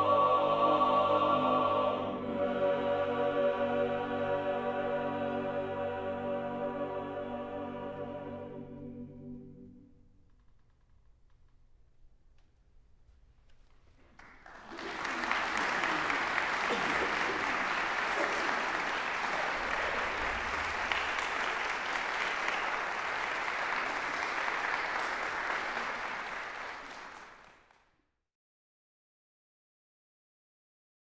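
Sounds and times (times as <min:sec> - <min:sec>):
audience applauding: 0:14.0 - 0:27.8.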